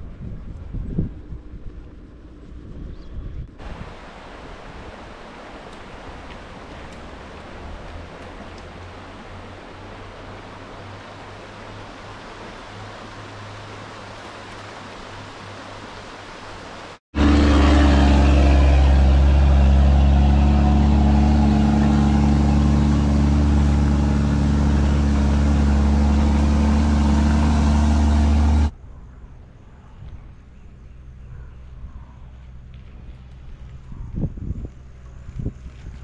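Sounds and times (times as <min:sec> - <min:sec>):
tanker truck diesel engine: 0:17.2 - 0:28.7.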